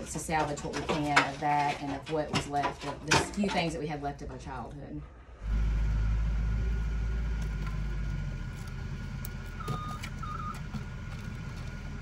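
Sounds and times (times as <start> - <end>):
vehicle engine rumble: 3.6 - 12.0
short high beeps: 9.6 - 10.6.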